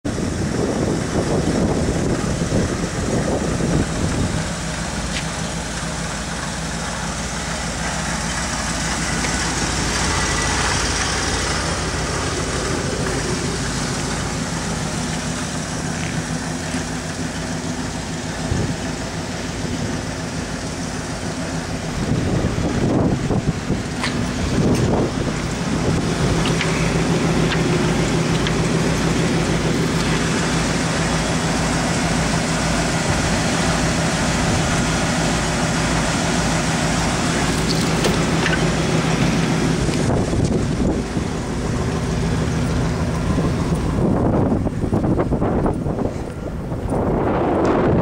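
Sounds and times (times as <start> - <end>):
engine idling: 0.0 - 48.0
wind buffeting microphone: 0.1 - 5.2, 8.4 - 20.2, 21.3 - 31.5, 36.9 - 48.0.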